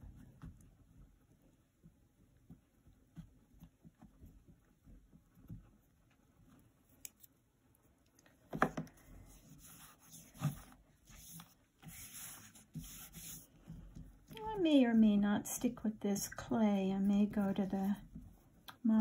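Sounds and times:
fingers rubbing clay: 9.2 - 14.8.

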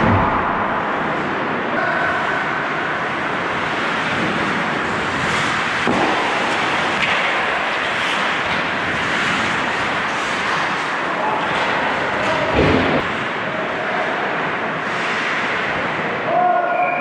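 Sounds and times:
skates scraping ice: 3.0 - 16.1
faint knocks of sticks and puck: 5.2 - 13.0.

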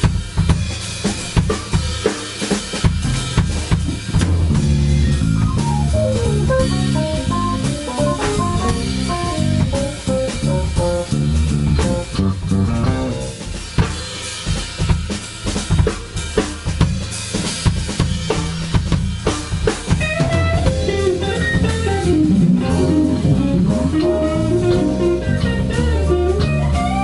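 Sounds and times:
drum kit: 0.0 - 27.0
instrumental rock band playing: 0.0 - 27.0
electric bass: 2.9 - 14.4, 17.0 - 27.0
fast descending guitar run: 4.2 - 13.6, 20.0 - 27.0.

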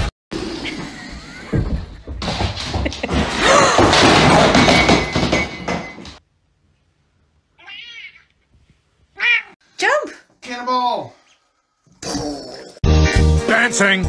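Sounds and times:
cat meowing: 7.6 - 8.4, 9.2 - 9.6.

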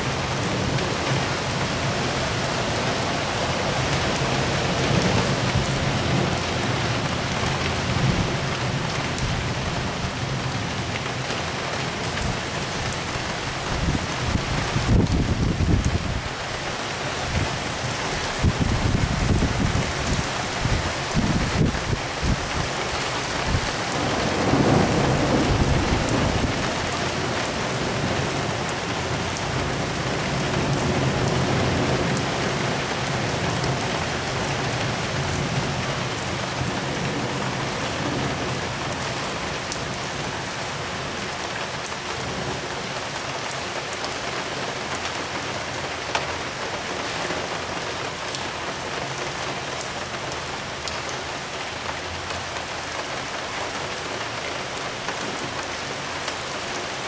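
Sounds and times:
heavy rain falling: 0.0 - 57.0
raindrops ticking on surfaces: 0.0 - 57.0
low thunder rumble: 23.4 - 27.0.

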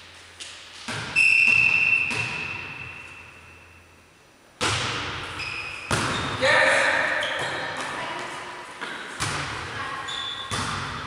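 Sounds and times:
referee's whistle blast: 1.2 - 2.2
ball being struck: 10.5 - 11.0.

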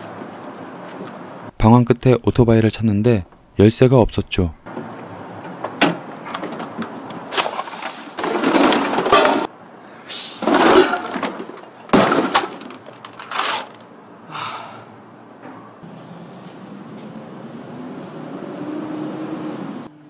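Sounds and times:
scooter knocking and rattling: 4.7 - 7.6.

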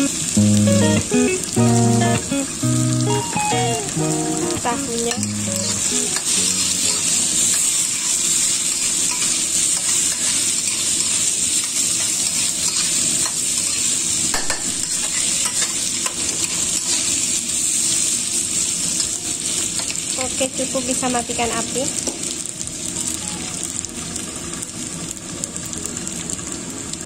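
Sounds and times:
plucked music notes: 0.0 - 7.1
food sizzling in a wok: 0.0 - 27.0
metal spatula stirring and scraping: 5.1 - 17.3.

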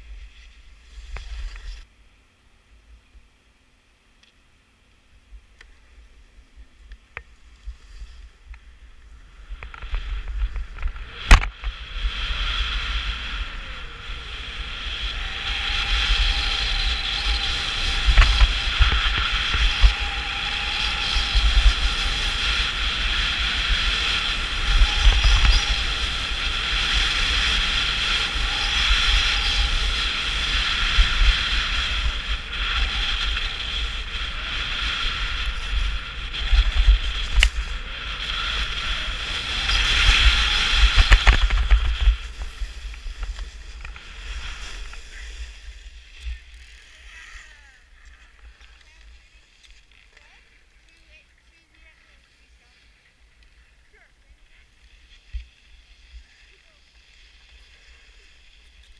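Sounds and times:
skis scraping over snow: 0.0 - 1.9, 7.3 - 58.9
wind buffeting microphone: 8.2 - 47.3.

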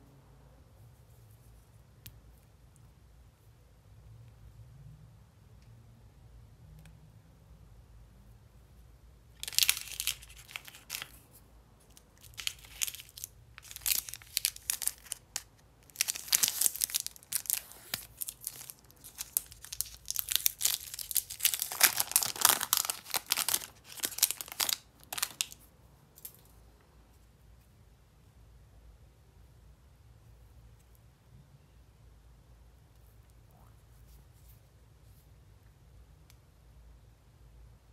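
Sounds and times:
candy wrapper crackling: 9.4 - 26.5.

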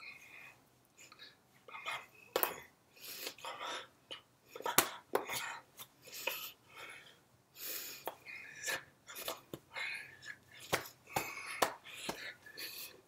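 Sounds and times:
hands tapping: 10.6 - 12.4.

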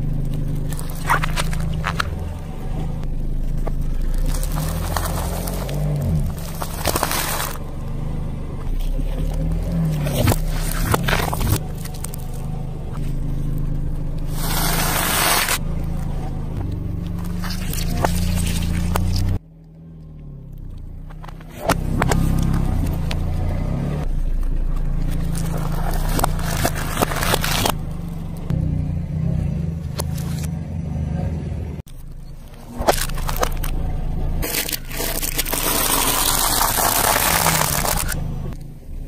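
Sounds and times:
tyre crushing objects on asphalt: 0.0 - 19.4, 21.0 - 28.6, 32.0 - 38.6
car engine humming: 0.0 - 39.0.

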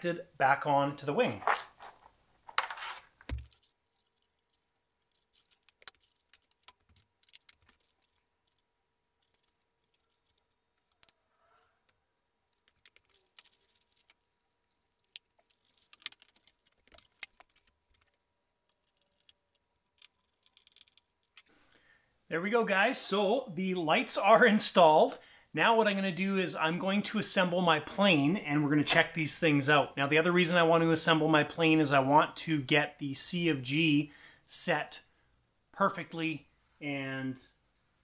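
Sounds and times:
small parts clicking and rattling: 1.8 - 11.2, 11.8 - 21.5.

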